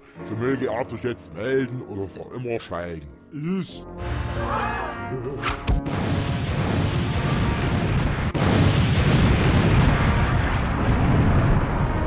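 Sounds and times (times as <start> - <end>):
cartoon explosions: 5.5 - 12.0.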